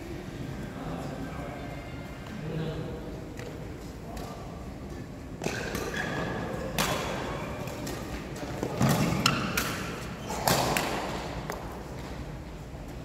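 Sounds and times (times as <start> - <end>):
racket hitting shuttlecock: 5.4 - 11.8.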